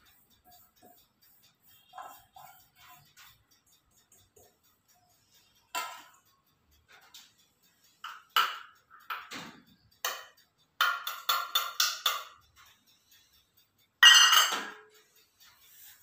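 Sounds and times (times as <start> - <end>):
steel cups clinking on bowl: 10.0 - 12.4, 14.0 - 14.9.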